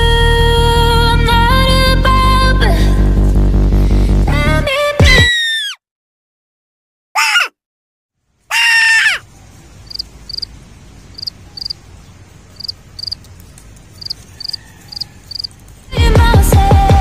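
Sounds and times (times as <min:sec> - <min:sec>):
loud shrill cry: 0:05.1 - 0:05.8, 0:07.2 - 0:07.6, 0:08.5 - 0:09.2
quiet outdoor ambience: 0:08.2 - 0:17.0.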